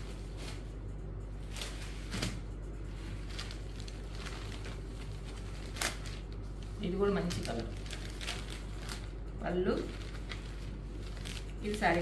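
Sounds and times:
fabric rustling: 0:00.0 - 0:09.1
low hum: 0:00.0 - 0:12.0.

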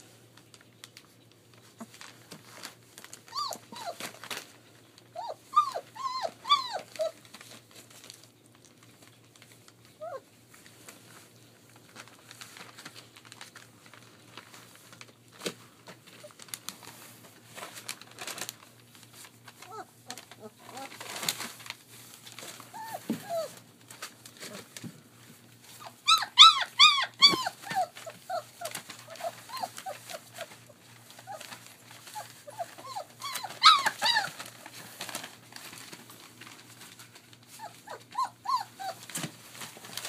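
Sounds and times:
newspaper crinkling: 0:00.3 - 0:40.0
puppy whimpering: 0:03.2 - 0:04.2, 0:05.1 - 0:07.3, 0:10.0 - 0:10.3, 0:19.6 - 0:21.2, 0:22.7 - 0:23.6, 0:25.7 - 0:35.2, 0:37.5 - 0:39.3.

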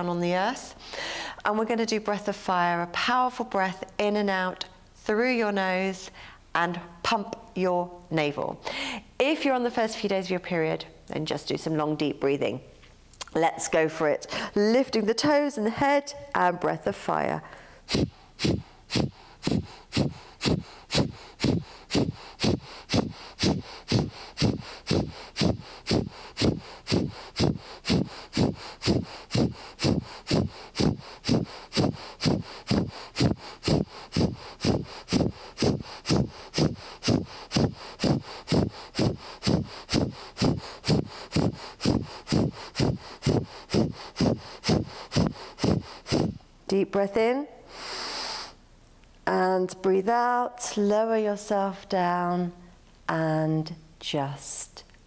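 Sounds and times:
woman breathing forcefully through nose: 0:00.8 - 0:01.4, 0:08.6 - 0:09.2, 0:17.4 - 0:46.5, 0:47.6 - 0:48.6.

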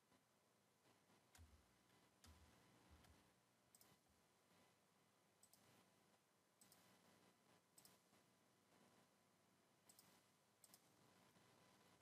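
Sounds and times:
computer mouse clicks: 0:02.2 - 0:04.0, 0:05.4 - 0:05.9, 0:06.6 - 0:07.0, 0:07.7 - 0:08.2, 0:09.8 - 0:11.0.

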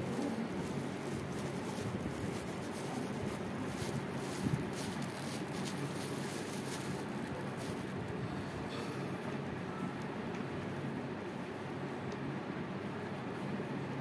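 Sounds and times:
plastic bag and gloves crinkling: 0:00.0 - 0:08.6.

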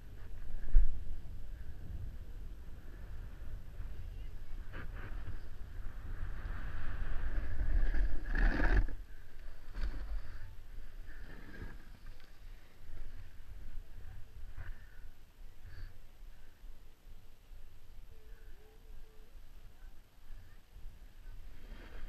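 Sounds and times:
wind rumbling on microphone: 0:00.0 - 0:18.1
snowboard scraping over snow: 0:04.6 - 0:12.1.

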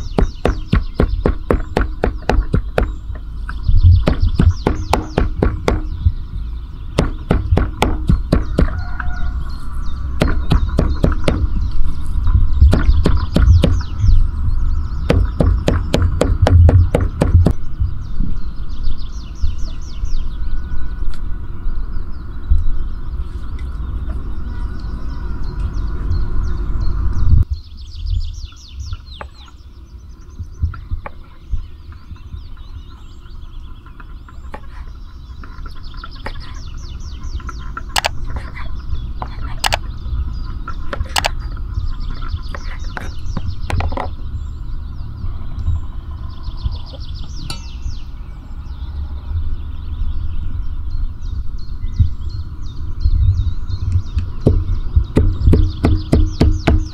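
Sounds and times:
birds chirping: 0:00.0 - 0:56.9
cleaver chopping meat on wood: 0:00.2 - 0:03.0, 0:03.9 - 0:06.0, 0:07.0 - 0:08.9, 0:10.2 - 0:11.6, 0:12.6 - 0:13.9, 0:15.1 - 0:17.6, 0:54.5 - 0:56.9.

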